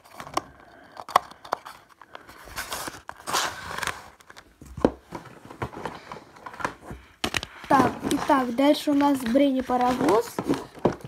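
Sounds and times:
cardboard rustling scrape: 0:07.7 - 0:11.0.

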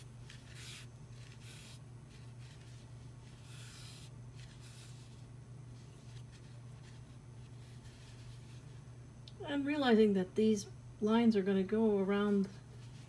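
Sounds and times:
yarn rustling and rubbing: 0:00.0 - 0:08.8
steady low hum: 0:00.0 - 0:13.0.

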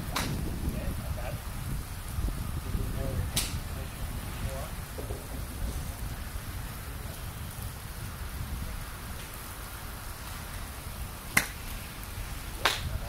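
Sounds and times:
low steady rumble: 0:00.0 - 0:13.0
golf club striking ball: 0:00.1 - 0:00.4, 0:03.3 - 0:03.6, 0:11.3 - 0:11.6, 0:12.6 - 0:12.9.

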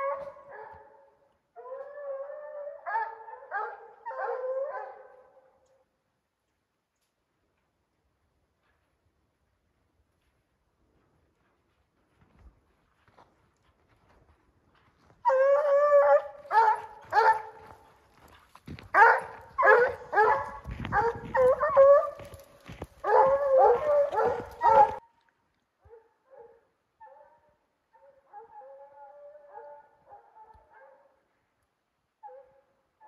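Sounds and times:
hounds baying: 0:15.2 - 0:25.0.

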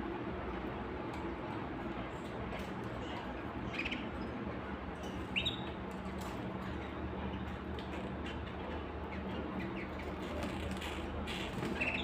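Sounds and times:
low background hum: 0:00.0 - 0:12.0
canaries chirping: 0:03.7 - 0:04.3, 0:05.3 - 0:05.8, 0:11.3 - 0:12.0.

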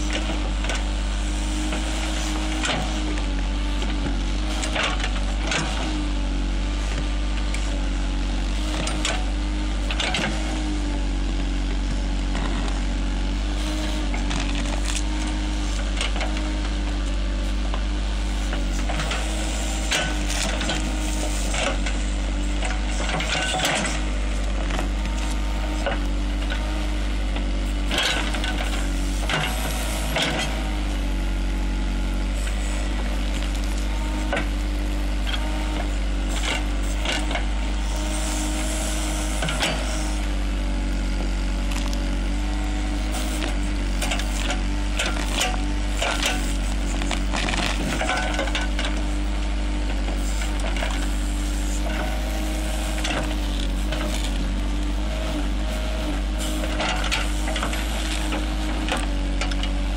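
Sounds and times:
diesel engine running: 0:00.0 - 0:59.9
bucket scraping roots and stones: 0:41.6 - 0:49.1.

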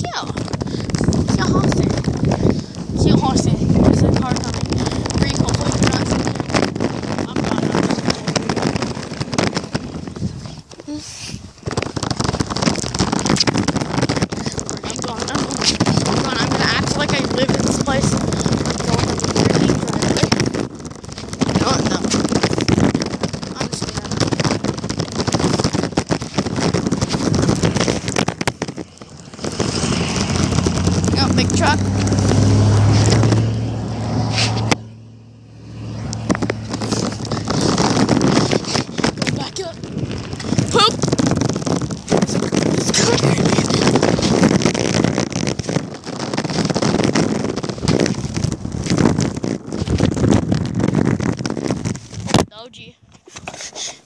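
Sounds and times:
scooter wheels rattling on gravel: 0:00.0 - 0:34.7, 0:35.9 - 0:54.0
wind buffeting microphone: 0:00.0 - 0:54.0.

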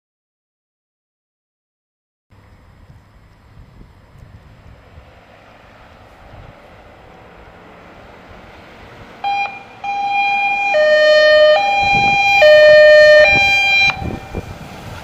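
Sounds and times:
truck engine rumbling: 0:02.3 - 0:15.0
two-tone fire engine siren: 0:08.7 - 0:15.0.

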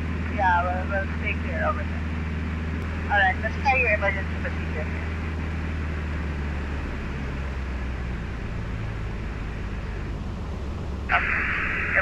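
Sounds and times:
aircraft engine droning: 0:00.0 - 0:12.0
rush of air noise: 0:11.1 - 0:12.0.

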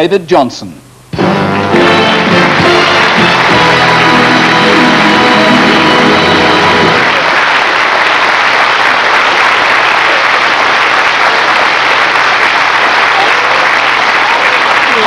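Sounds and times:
audience applauding: 0:01.3 - 0:15.0.

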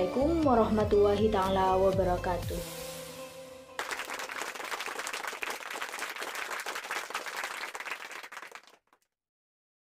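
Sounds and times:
many hands clapping: 0:03.8 - 0:09.1.

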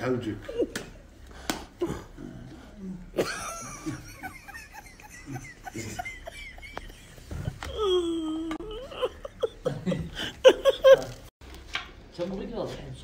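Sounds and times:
men laughing: 0:03.0 - 0:11.3.

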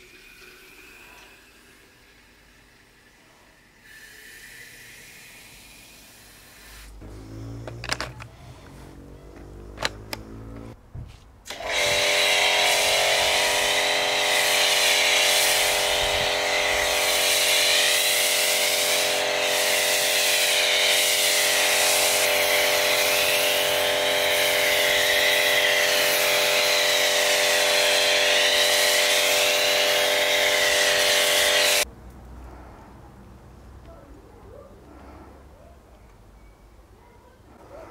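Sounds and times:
foam spray hiss: 0:03.8 - 0:07.4, 0:12.0 - 0:31.8
pressure washer motor hum: 0:06.5 - 0:10.8, 0:11.5 - 0:31.8.

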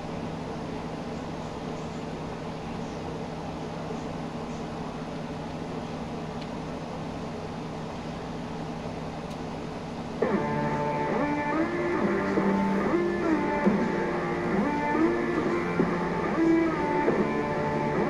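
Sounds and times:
fan humming: 0:00.0 - 0:18.0
strummed guitar music: 0:10.2 - 0:18.0.

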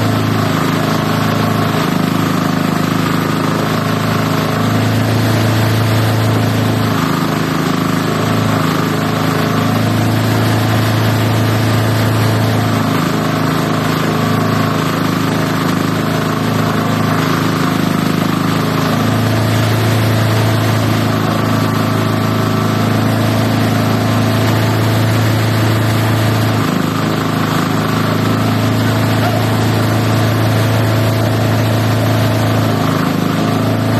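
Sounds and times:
chopper machine droning: 0:19.0 - 0:33.9.

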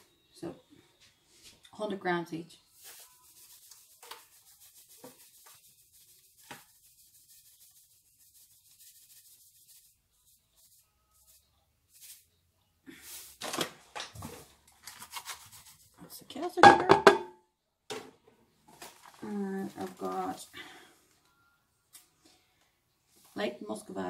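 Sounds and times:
bag rustling: 0:18.7 - 0:20.4.

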